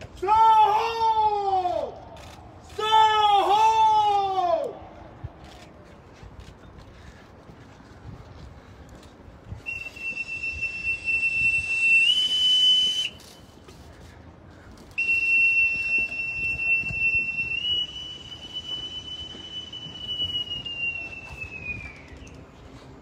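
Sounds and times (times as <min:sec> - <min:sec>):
bosun's pipe whistle: 0:09.6 - 0:13.6, 0:14.9 - 0:22.4.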